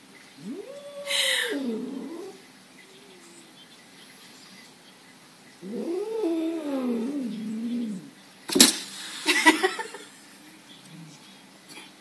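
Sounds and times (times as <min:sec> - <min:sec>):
cat yowling: 0:00.4 - 0:02.4
sharp thump: 0:08.5 - 0:08.9.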